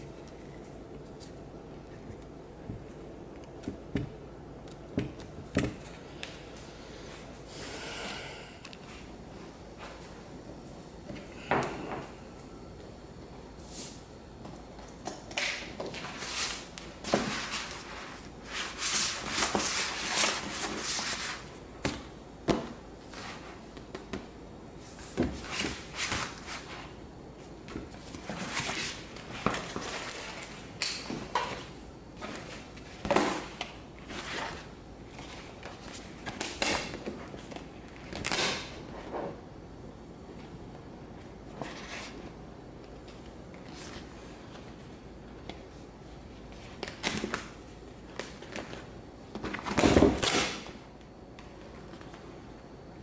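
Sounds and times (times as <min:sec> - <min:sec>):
vinyl sheet rustling and crackling: 0:14.6 - 0:39.5.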